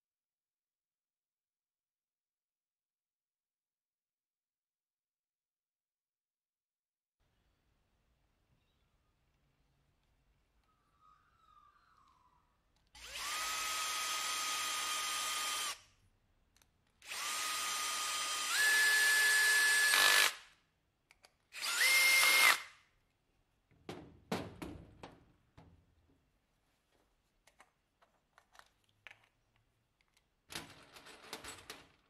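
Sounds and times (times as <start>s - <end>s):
cordless drill whine: 13.0s - 15.8s, 17.0s - 20.4s, 21.6s - 22.7s
small parts clicking and rattling: 27.4s - 32.0s.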